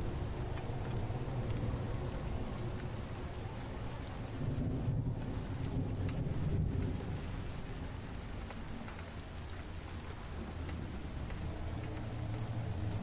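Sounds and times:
thunder rumble: 0:00.0 - 0:08.6
rain on pavement: 0:00.0 - 0:13.0.

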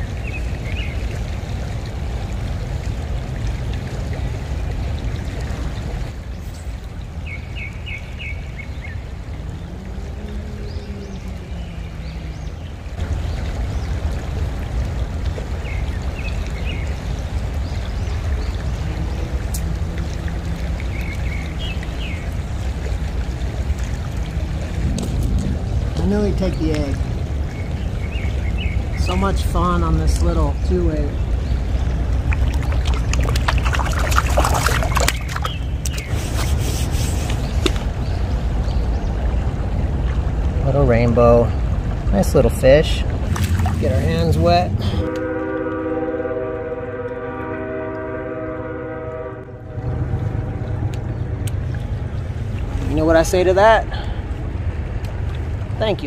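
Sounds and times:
creek water rushing: 0:00.0 - 0:56.0
fish splashing in shallows: 0:31.4 - 0:40.5, 0:43.2 - 0:44.6.

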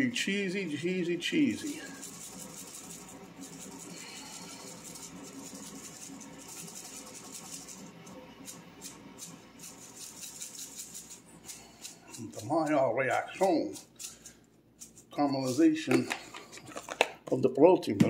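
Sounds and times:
spice jar shaking: 0:01.5 - 0:07.9, 0:08.8 - 0:16.0.

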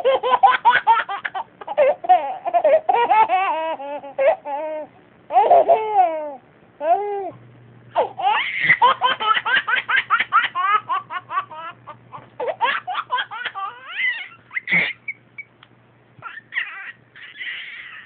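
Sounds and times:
high-pitched laughter: 0:08.0 - 0:15.5.

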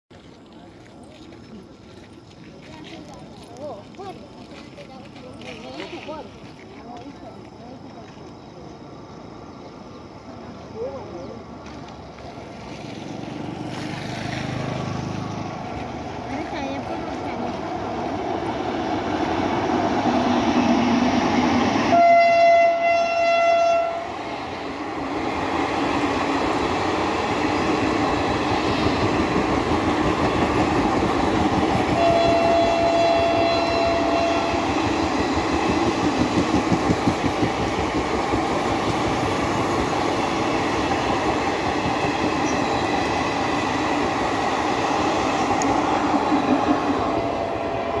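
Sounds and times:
train coaches rumbling over track: 0:00.1 - 0:48.0
locomotive horn blasts: 0:21.9 - 0:24.1, 0:32.0 - 0:34.8.

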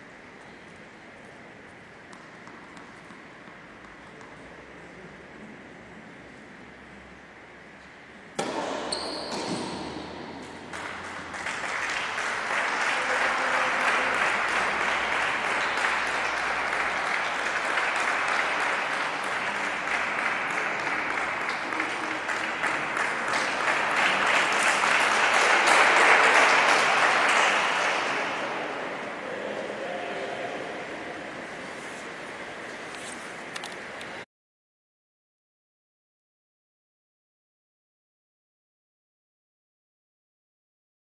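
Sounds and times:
sharp knock: 0:08.4 - 0:10.5
spectators clapping in a hall: 0:10.5 - 0:29.2.

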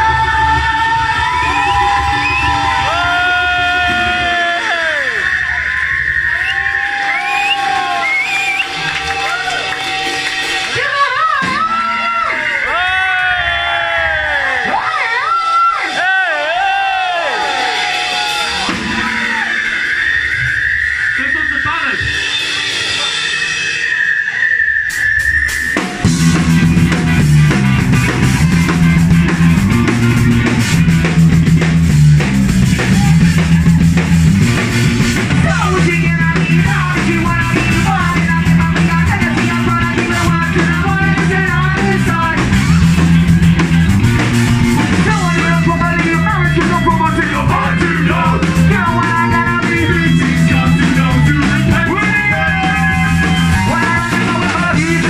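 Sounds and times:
drum kit: 0:00.0 - 0:55.0
guitar: 0:00.0 - 0:55.0
ska-punk band playing: 0:00.0 - 0:55.0
repeating bass line: 0:24.9 - 0:55.0.

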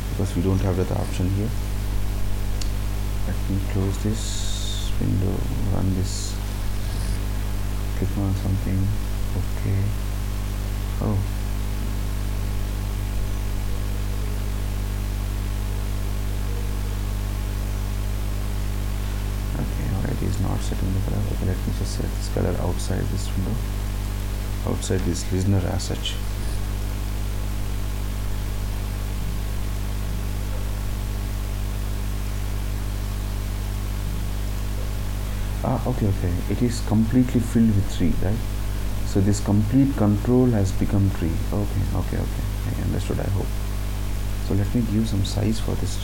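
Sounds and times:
electrical mains hum: 0:00.0 - 0:46.0
recording hiss: 0:00.0 - 0:46.0.

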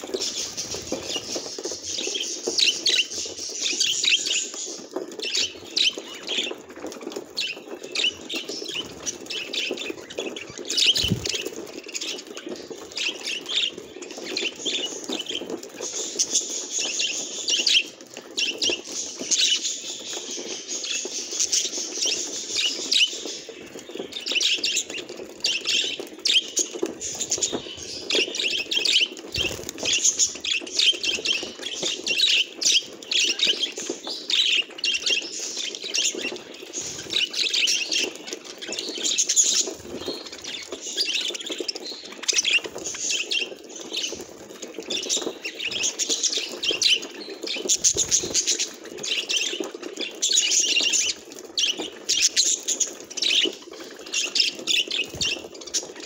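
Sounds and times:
budgerigars chattering: 0:08.0 - 0:11.6.

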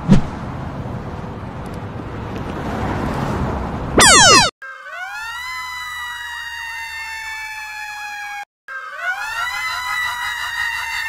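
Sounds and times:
digitally altered siren: 0:04.0 - 0:09.7
emergency siren wailing: 0:04.0 - 0:11.0.

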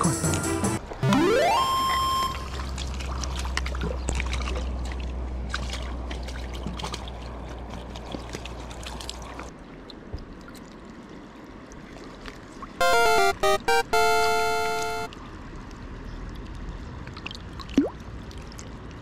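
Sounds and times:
water splashing and trickling: 0:01.6 - 0:12.8, 0:15.5 - 0:19.0.

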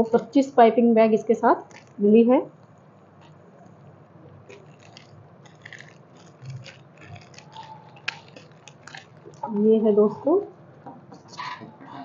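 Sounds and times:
plastic bags crinkling: 0:01.6 - 0:10.4.

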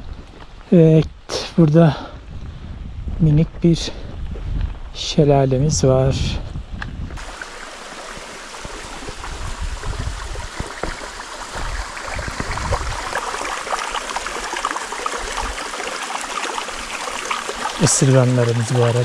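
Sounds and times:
waterfall rushing and trickling: 0:07.2 - 0:19.0.

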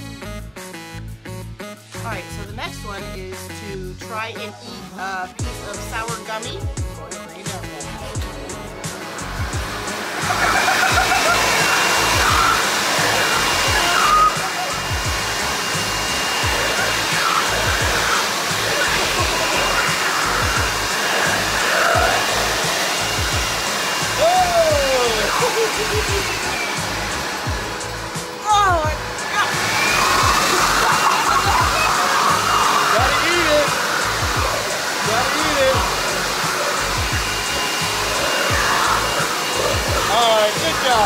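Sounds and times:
leaf blower running: 0:05.4 - 0:41.0
music with low thumping beat: 0:05.4 - 0:41.0
high wail sliding down in pitch: 0:10.2 - 0:14.9, 0:24.0 - 0:27.5, 0:28.2 - 0:36.0.

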